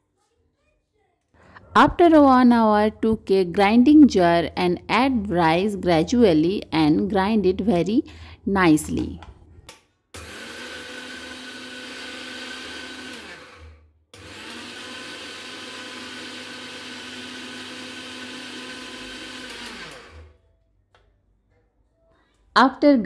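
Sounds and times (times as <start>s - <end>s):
mixer grinder grinding rice: 10.2s - 20.4s.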